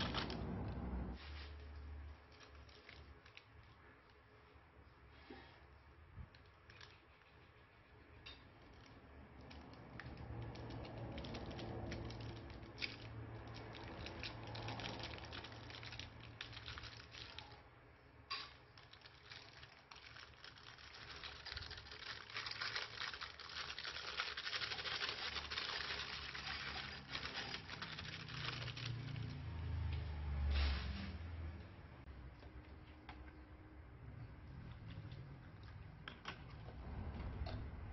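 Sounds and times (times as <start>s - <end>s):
plastic bag crinkling: 0.0s - 1.6s, 2.2s - 3.7s, 10.4s - 17.6s, 18.6s - 29.4s
plastic beads clattering into bowl: 18.3s - 29.2s.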